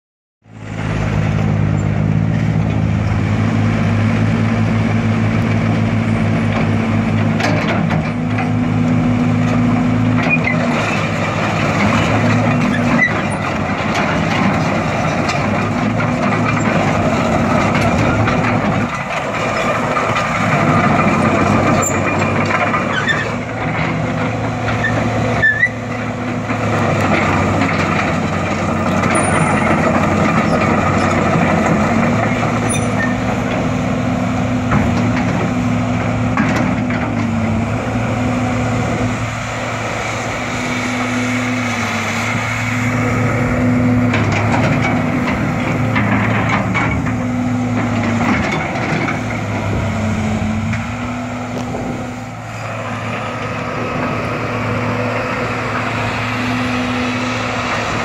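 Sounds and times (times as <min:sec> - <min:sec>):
excavator diesel engine running: 0:00.4 - 0:58.0.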